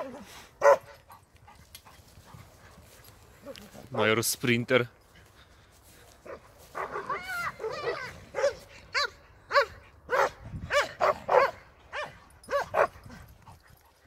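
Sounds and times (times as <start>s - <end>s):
dog yipping barks: 0.6s - 0.8s, 6.3s - 13.0s.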